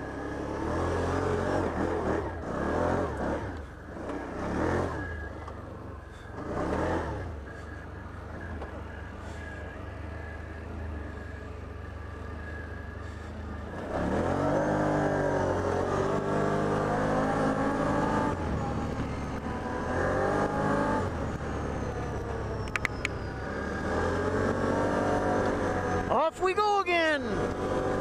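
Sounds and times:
atv engine: 0.0s - 28.0s
sharp clicks: 22.6s - 23.2s.

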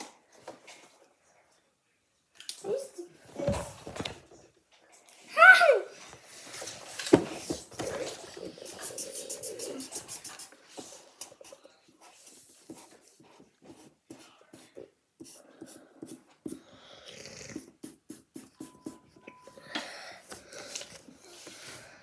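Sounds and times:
markers clicking and tapping: 12.6s - 16.7s, 17.6s - 19.4s.

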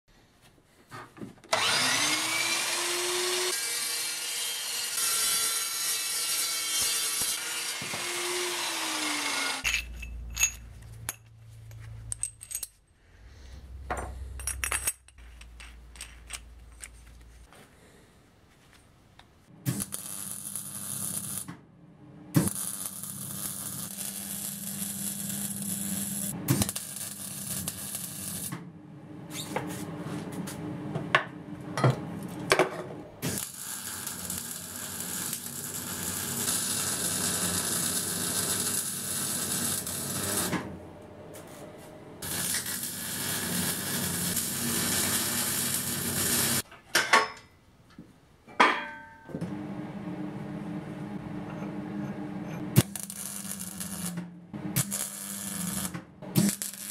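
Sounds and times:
power tool motor spinning: 1.5s - 5.0s
noisy power tool running: 1.5s - 9.6s
low hum: 49.0s - 52.8s.

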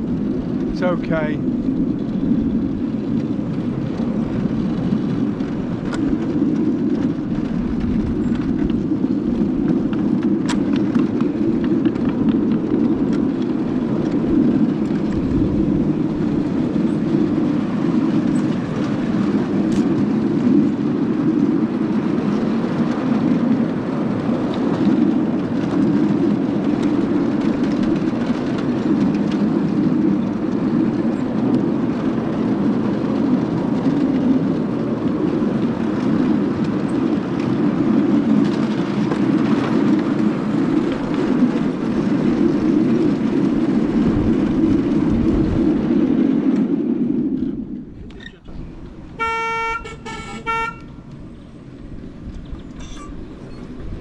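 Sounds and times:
miniature train rumbling on track: 0.0s - 54.0s
sharp track clicks: 0.1s - 20.6s.

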